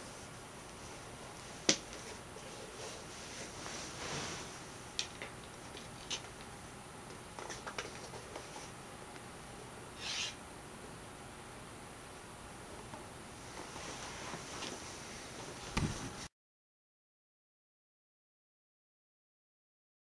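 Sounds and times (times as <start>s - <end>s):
soft rustle of handling shoe: 0.0s - 4.7s, 13.4s - 16.3s.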